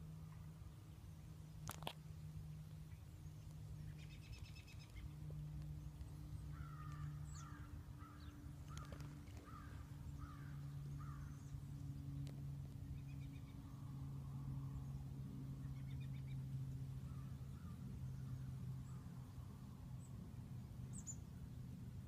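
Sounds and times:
steady low hum: 0.0 - 22.0
bird harsh calls: 6.4 - 11.5.

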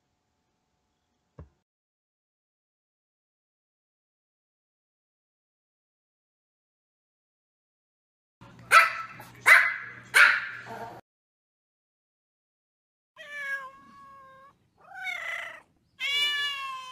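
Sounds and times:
dog barking: 8.7 - 11.0
cat meowing: 13.2 - 16.9.

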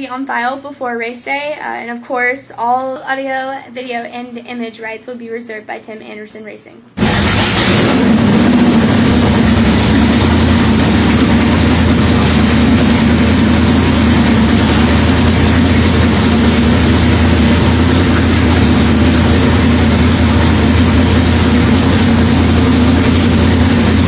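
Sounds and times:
race car engine idling: 7.0 - 24.0.

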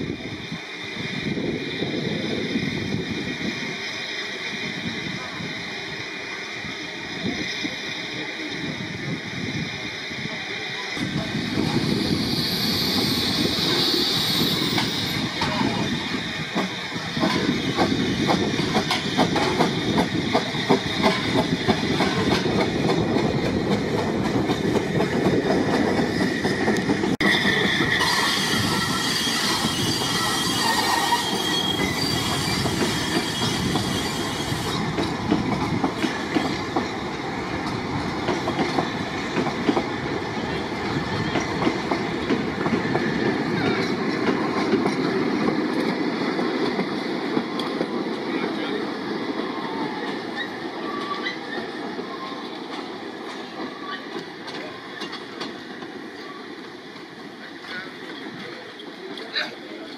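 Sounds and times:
steam hissing: 0.2 - 38.1
steam locomotive chuffing: 0.2 - 48.8
high squeal: 10.7 - 16.4, 26.0 - 34.9.

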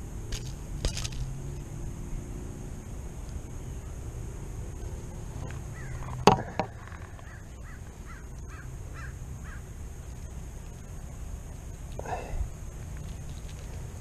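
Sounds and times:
bird calling: 5.4 - 9.7.

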